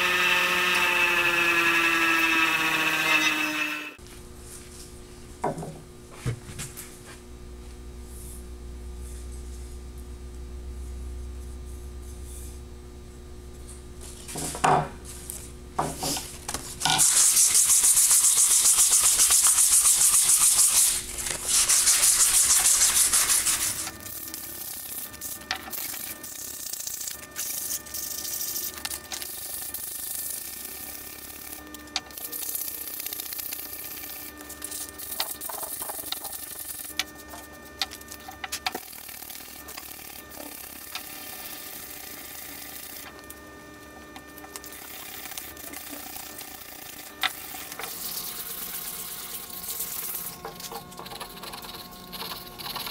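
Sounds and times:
sandpaper rubbing on wood: 17.0 - 23.9.

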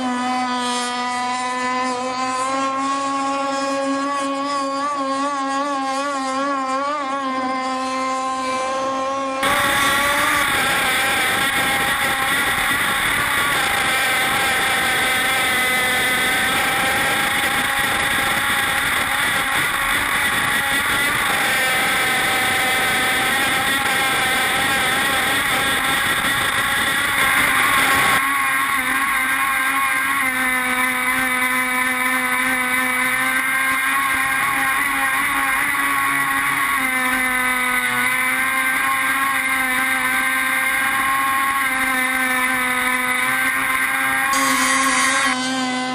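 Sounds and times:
small two-stroke boat engine: 0.0 - 45.9.

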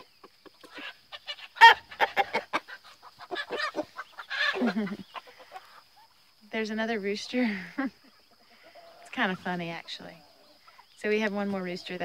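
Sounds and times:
chicken squawk: 0.0 - 6.2
chickens clucking: 0.0 - 12.0.

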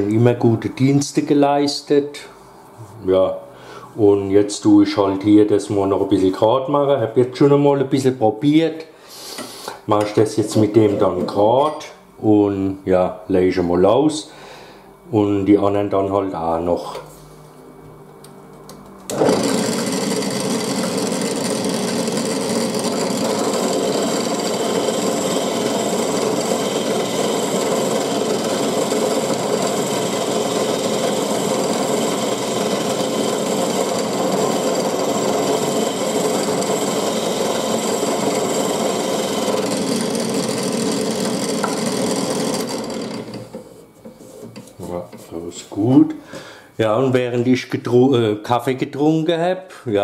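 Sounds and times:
drill press motor hum: 18.2 - 43.7
rasp scraping spinning wood: 19.1 - 44.8.

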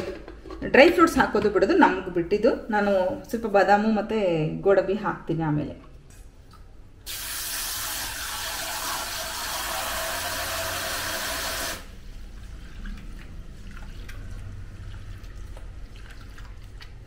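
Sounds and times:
faucet spraying water into steel bowl: 7.1 - 11.9.

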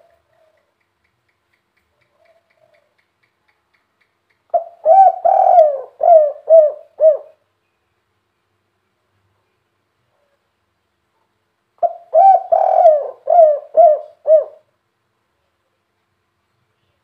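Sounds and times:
dove cooing: 4.5 - 7.4, 11.8 - 14.7.

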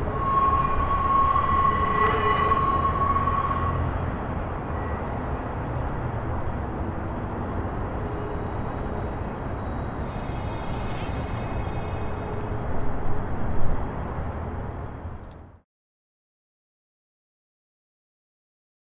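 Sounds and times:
faint high ringing tone: 0.0 - 5.8, 6.8 - 13.0
freight train rumbling: 0.0 - 15.5.

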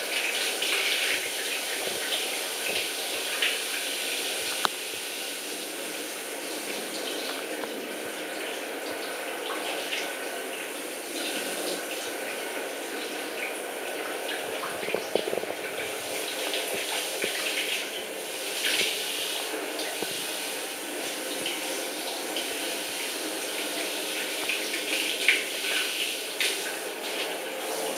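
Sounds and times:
shower head spraying water: 13.5 - 27.9.

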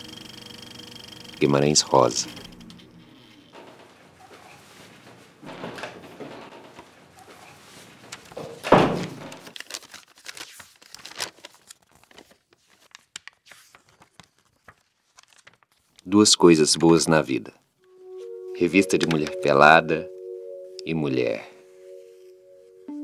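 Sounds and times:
soft rustling: 3.7 - 8.6.

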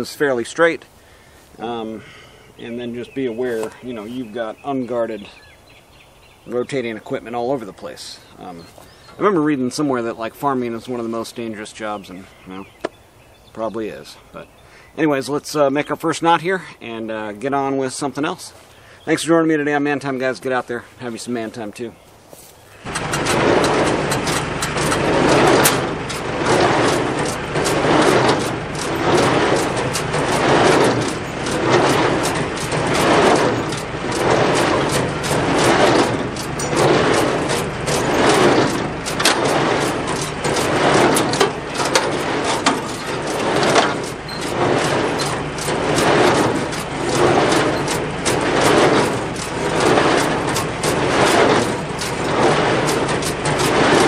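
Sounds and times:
tractor engine running: 22.7 - 54.0
baler mechanism clanking: 22.8 - 54.0.

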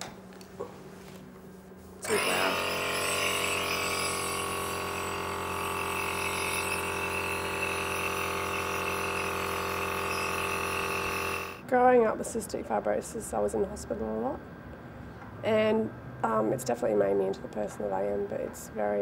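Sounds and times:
compressor motor hum: 1.9 - 11.7.

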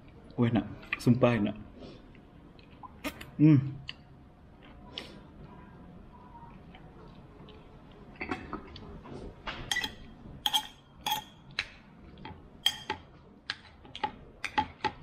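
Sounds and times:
metal spoon clinking on ceramic plate: 9.7 - 11.4, 12.6 - 13.0.

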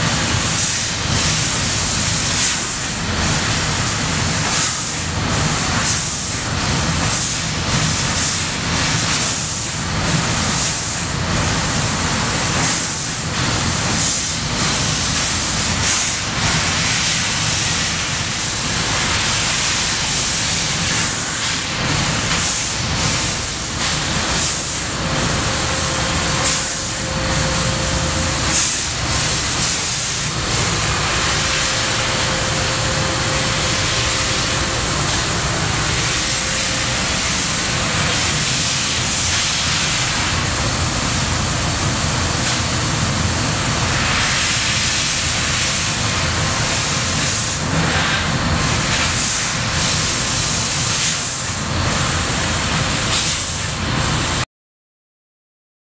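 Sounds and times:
laser cutter hissing: 0.0 - 54.3.

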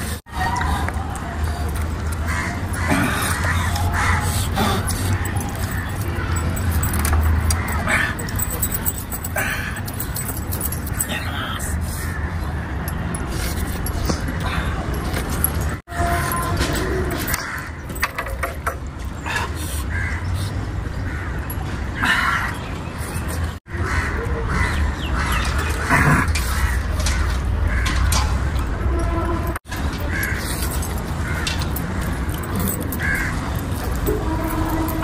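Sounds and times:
crows cawing: 2.1 - 4.4, 17.3 - 17.8, 23.7 - 25.5, 30.1 - 30.5, 31.2 - 33.6.

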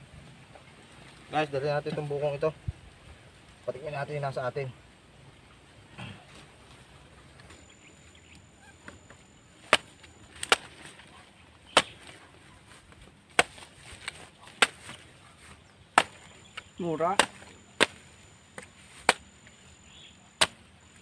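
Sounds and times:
knife chopping coconut husk: 9.6 - 10.8, 11.7 - 12.2, 13.3 - 15.0, 15.9 - 19.4, 20.3 - 20.6.

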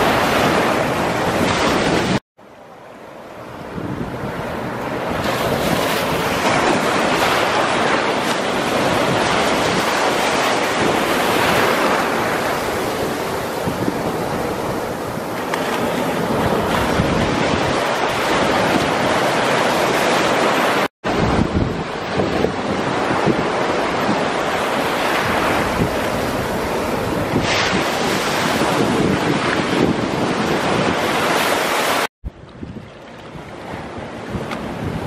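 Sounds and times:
sea surf breaking: 0.0 - 2.2, 2.9 - 32.1.

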